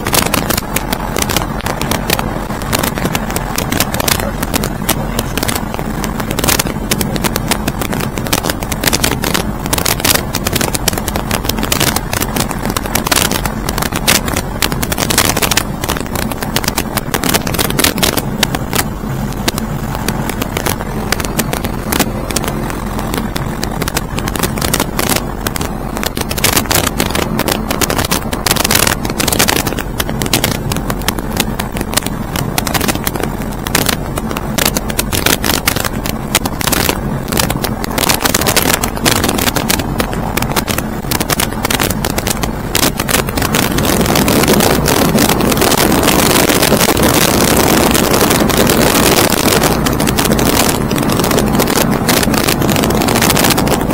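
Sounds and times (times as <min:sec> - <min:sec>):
aircraft engine drone: 0:00.0 - 0:35.2
wind buffeting microphone: 0:00.0 - 0:53.9.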